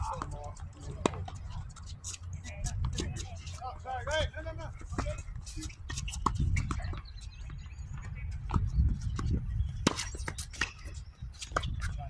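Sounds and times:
tennis rackets striking ball: 0:09.2 - 0:11.7.

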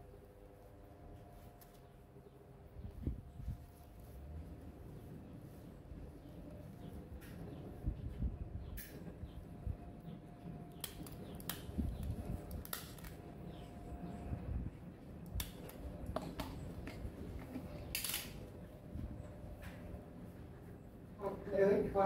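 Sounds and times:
rustling of handling: 0:00.2 - 0:07.8.

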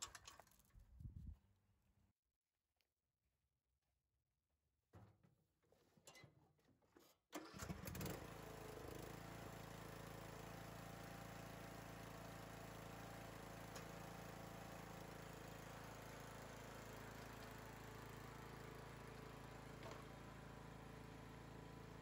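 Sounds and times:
riding mower engine starting and running: 0:07.4 - 0:22.0.

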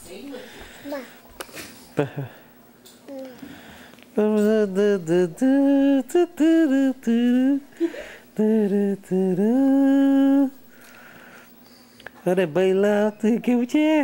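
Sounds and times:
person humming a tune: 0:04.2 - 0:10.7.

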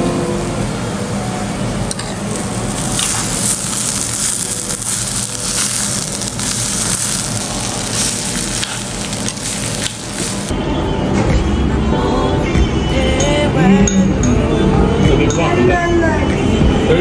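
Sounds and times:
rice sizzling in a stone bowl: 0:01.9 - 0:10.5.

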